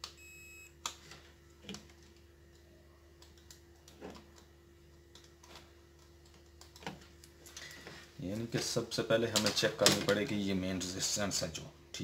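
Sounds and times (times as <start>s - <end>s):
multimeter continuity beep: 0.0s - 0.8s.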